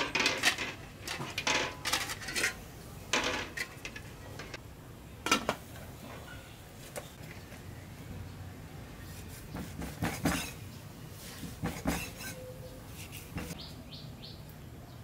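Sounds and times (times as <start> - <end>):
eggs clinking on metal: 0.0 - 4.6.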